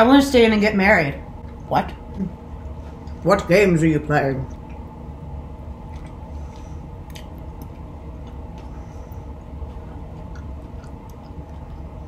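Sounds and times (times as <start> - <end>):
low hum: 0.0 - 12.0
close chewing: 5.9 - 12.0
wet mouth clicks: 9.9 - 11.9.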